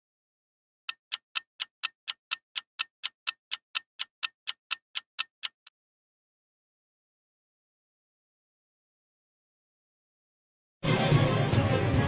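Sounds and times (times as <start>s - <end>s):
clock ticking: 0.9s - 5.7s.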